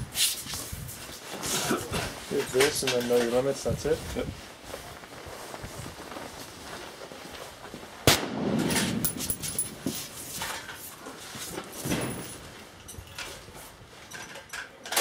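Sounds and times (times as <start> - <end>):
clothing rustling: 0.1 - 8.0, 8.9 - 14.1
rifle shot rumble: 8.0 - 9.2
rifle being handled: 8.7 - 12.6
boots scuffing on concrete: 8.8 - 12.4.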